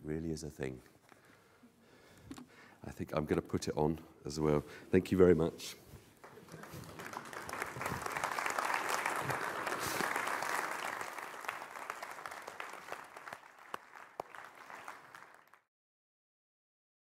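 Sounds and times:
audience applauding: 6.2s - 15.7s.

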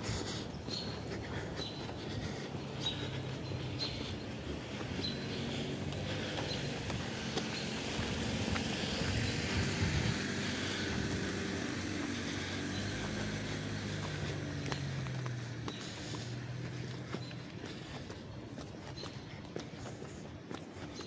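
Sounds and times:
car driving past: 2.6s - 17.4s.

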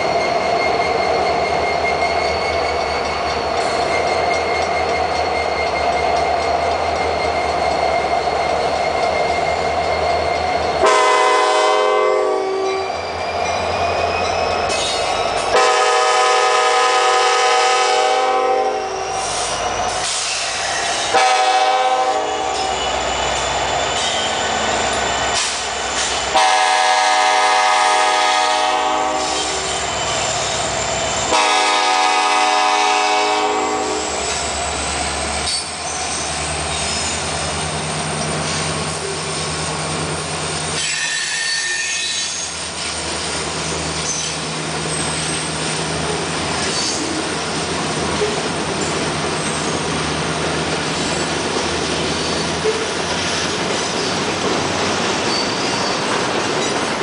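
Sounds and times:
freight train rumble: 0.0s - 57.0s
train horn blasts: 10.8s - 12.8s, 15.5s - 19.0s, 21.1s - 22.7s, 26.3s - 29.7s, 31.3s - 34.2s
thin high squeal: 22.5s - 26.2s, 35.5s - 37.3s, 40.8s - 42.6s, 55.3s - 56.0s.

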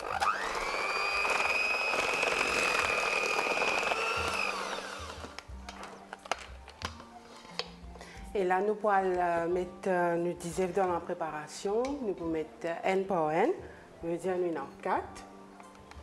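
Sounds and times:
electric hand mixer running: 0.0s - 5.4s.

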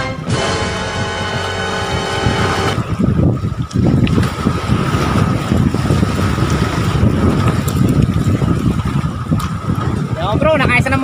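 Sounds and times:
wind buffeting microphone: 0.0s - 11.0s
waves splashing on rocks: 2.8s - 11.0s.

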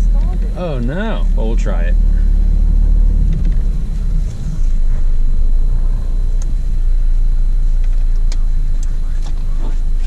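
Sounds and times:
car cabin rumble: 0.0s - 10.0s.

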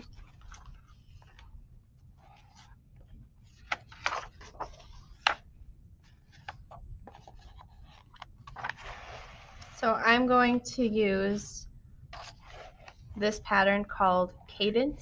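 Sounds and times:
paper pages rustling: 0.0s - 9.8s, 12.1s - 13.2s.

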